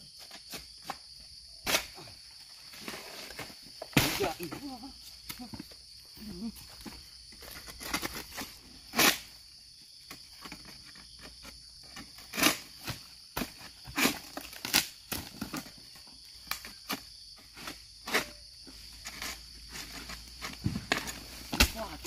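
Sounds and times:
high insect drone: 0.0s - 22.0s
sickle cutting frond stalks: 13.9s - 15.5s, 19.0s - 22.0s.

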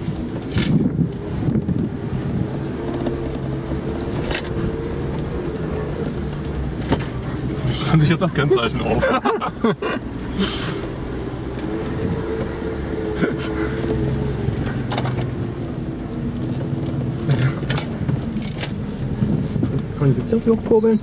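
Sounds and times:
car body knocking and rattling: 0.0s - 8.4s, 16.1s - 21.0s
car engine running at low speed: 0.0s - 21.0s.

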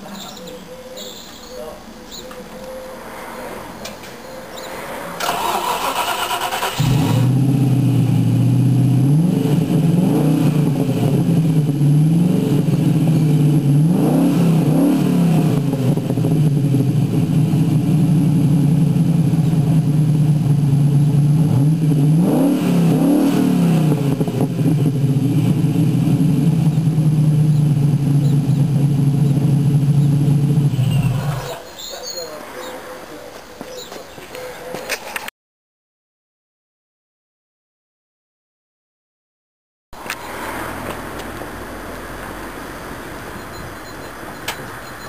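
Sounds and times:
car engine idling with rumble: 4.3s - 31.6s
engine revving: 4.5s - 31.6s, 40.0s - 43.5s
engine starter cranking: 5.2s - 7.4s.

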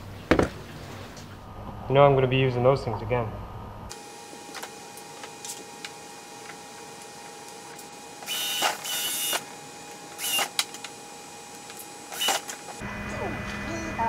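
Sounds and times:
cordless drill whirring: 8.2s - 12.8s.

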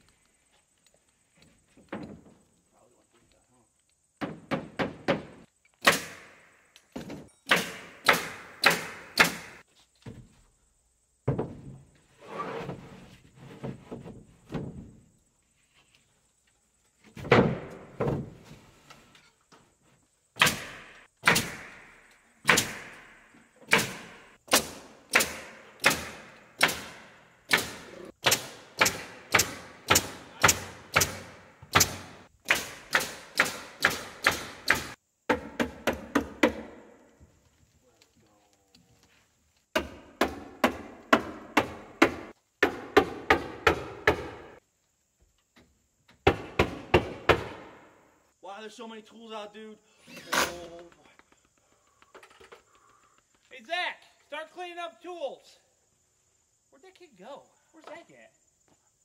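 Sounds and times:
hammer knocks driving nails: 7.4s - 9.6s, 23.6s - 36.8s, 39.7s - 44.5s.

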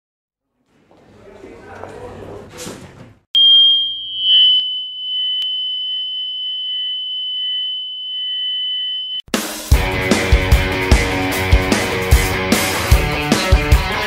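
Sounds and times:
high-pitched electronic whine: 3.4s - 9.2s.

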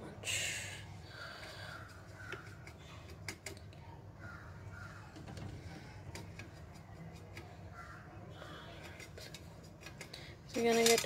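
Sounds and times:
steady low hum: 0.0s - 11.0s
brush scratching in paint tin: 1.7s - 3.4s, 5.7s - 11.0s
brush clicking against tin: 5.7s - 7.7s, 8.7s - 11.0s.

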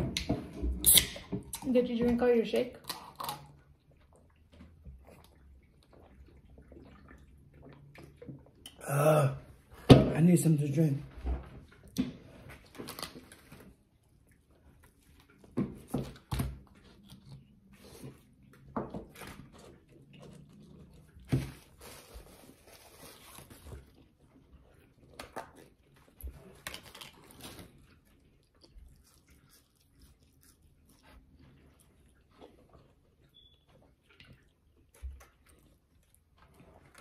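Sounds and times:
mouth clicks and smacks: 0.0s - 1.7s
chewing food: 0.0s - 8.8s, 11.5s - 37.0s.

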